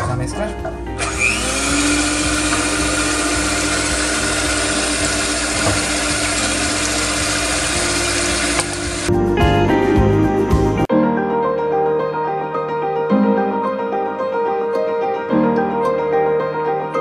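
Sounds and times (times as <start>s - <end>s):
electric hand mixer whirring: 1.0s - 9.1s.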